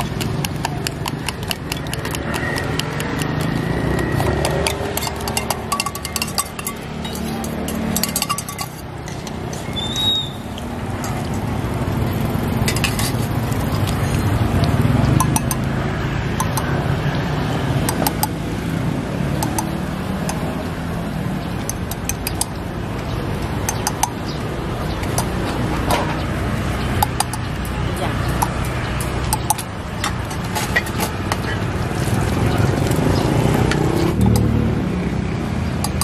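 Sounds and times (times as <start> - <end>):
metal spoon clinking on steel bowls: 0.0 - 15.7, 16.4 - 16.8, 19.4 - 20.7, 21.4 - 22.7, 23.4 - 33.0, 35.8 - 36.0
street background rumble: 0.0 - 36.0.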